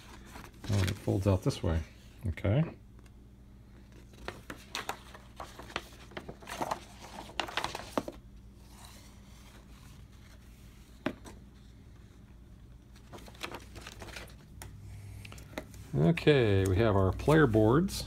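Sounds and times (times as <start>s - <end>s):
paper rustling and crinkling: 0.0s - 1.5s, 3.8s - 11.4s, 12.8s - 14.6s.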